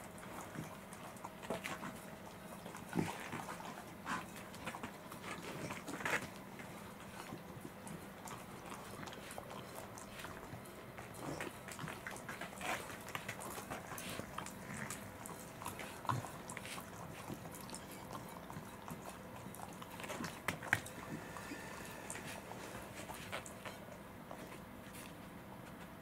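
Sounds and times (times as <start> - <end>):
dog licking a plate: 0.0 - 24.6.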